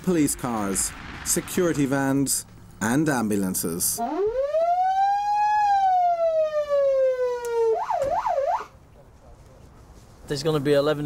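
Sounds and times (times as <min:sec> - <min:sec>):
ambulance siren: 0:04.0 - 0:08.7.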